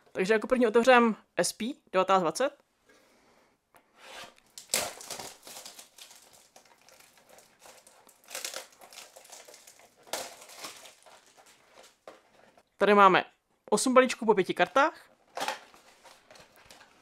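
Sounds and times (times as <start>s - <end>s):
plastic shrink wrap crinkling: 4.3s - 12.7s, 14.5s - 17.0s.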